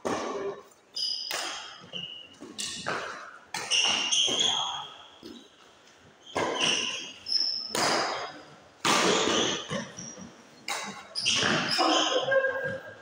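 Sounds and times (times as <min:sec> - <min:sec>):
shoes squeaking on court floor: 0:00.0 - 0:13.0
rackets striking shuttlecock: 0:01.1 - 0:04.8, 0:06.3 - 0:09.9.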